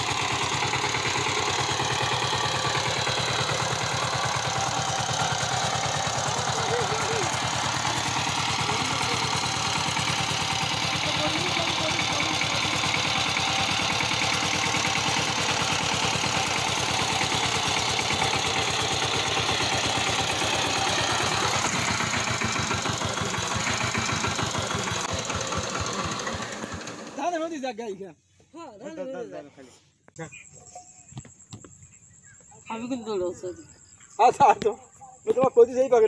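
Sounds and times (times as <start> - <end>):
diesel engine knocking: 0.0 - 27.3.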